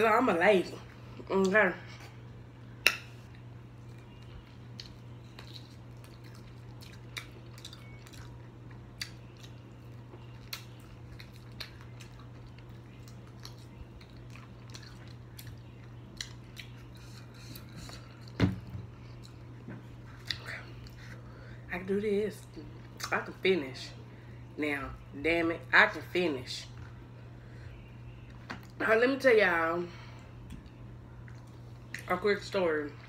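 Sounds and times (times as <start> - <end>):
steady low hum: 0.0 - 33.0
soft chewing and lip smacks: 3.0 - 21.3, 30.2 - 32.1.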